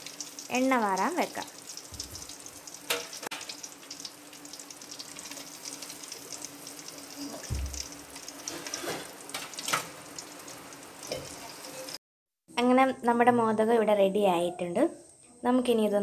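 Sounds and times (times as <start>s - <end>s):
hot oil sizzling: 0.0s - 12.0s.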